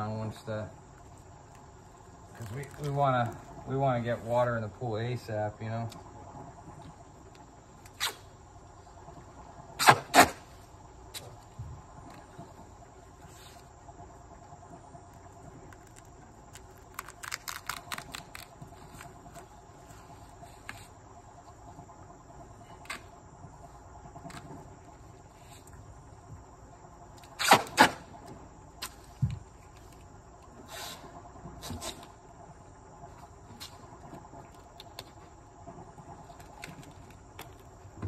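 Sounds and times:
insect chirring: 0:00.0 - 0:38.0
tape snapping and crackling: 0:02.3 - 0:03.4, 0:15.7 - 0:19.5.

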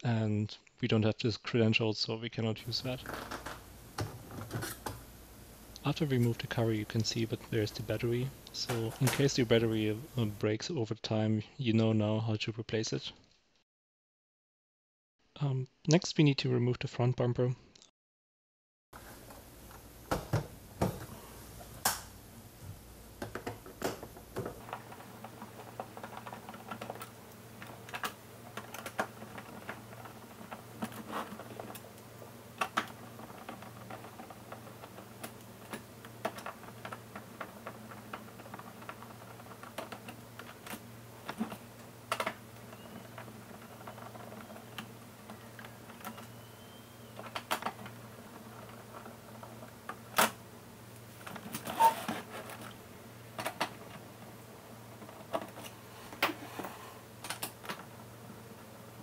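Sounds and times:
low steady hum: 0:02.6 - 0:10.5
plastic clicks and knocks: 0:19.2 - 0:21.1, 0:23.2 - 0:32.0.

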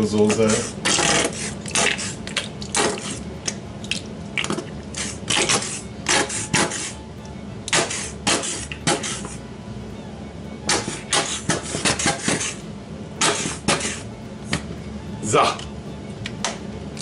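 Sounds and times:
squeeze bottle sputtering sauce: 0:00.2 - 0:07.1, 0:07.7 - 0:09.4, 0:10.7 - 0:12.6, 0:13.2 - 0:14.6.

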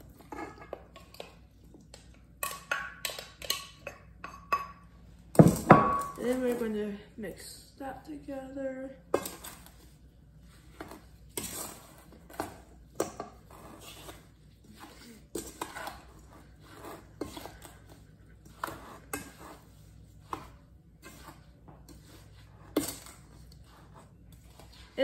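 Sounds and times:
spatula scraping metal bowl: 0:09.2 - 0:25.0.

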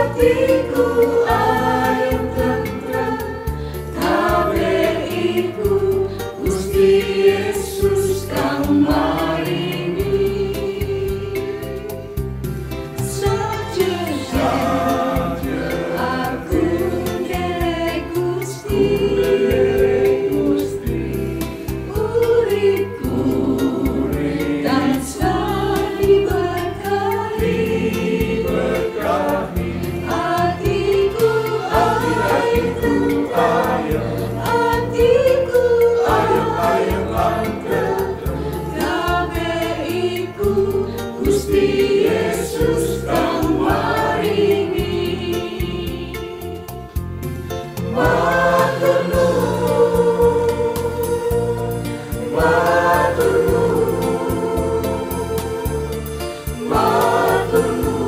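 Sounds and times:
mixed choir singing a hymn: 0:00.0 - 0:58.0.

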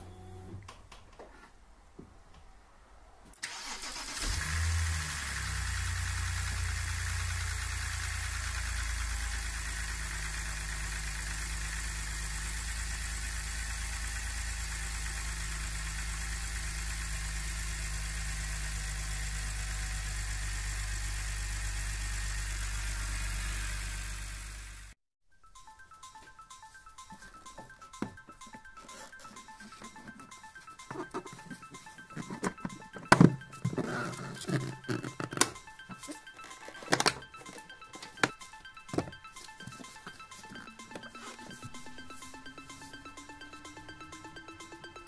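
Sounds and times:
car engine starting and idling: 0:03.3 - 0:25.0.

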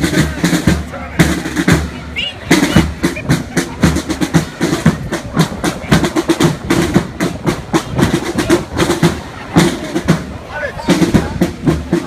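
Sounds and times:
drums beating: 0:00.0 - 0:12.0.

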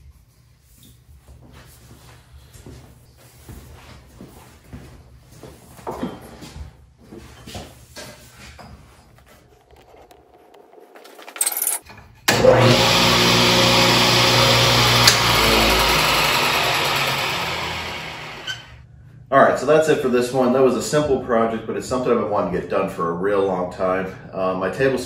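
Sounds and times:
table saw motor humming: 0:12.3 - 0:18.8.

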